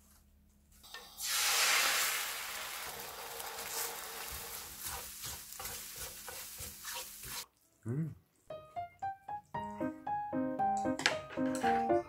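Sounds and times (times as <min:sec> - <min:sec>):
eggs sizzling in frying pan: 0:01.0 - 0:07.5
wooden spoon stirring eggs: 0:03.5 - 0:07.5.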